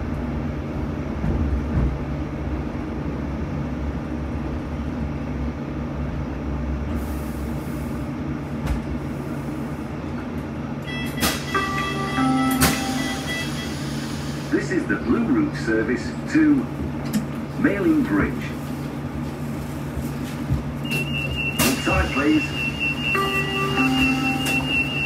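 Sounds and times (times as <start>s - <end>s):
tram wheels rumbling on rail: 0.0s - 25.0s
electronic beeps: 20.8s - 25.0s.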